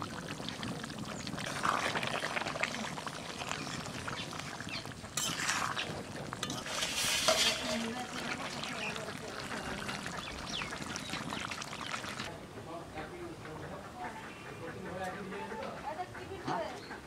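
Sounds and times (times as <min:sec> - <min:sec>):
curry bubbling in a pot: 0:00.0 - 0:12.3
ladle stirring and scraping: 0:00.0 - 0:12.3.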